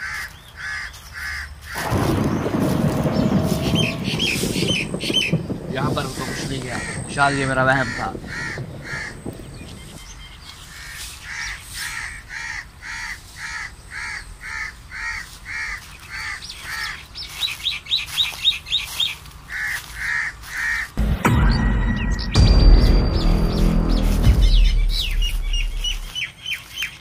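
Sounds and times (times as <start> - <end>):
crow cawing: 0.0 - 2.1, 6.2 - 9.8, 10.7 - 17.0, 19.5 - 21.0.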